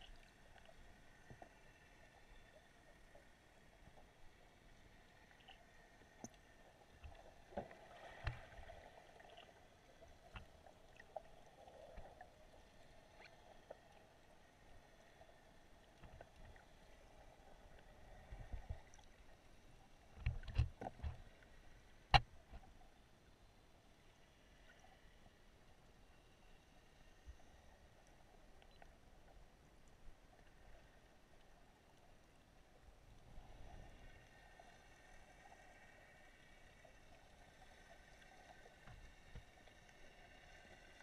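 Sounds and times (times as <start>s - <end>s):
soft clicks and knocks: 20.1s - 22.8s.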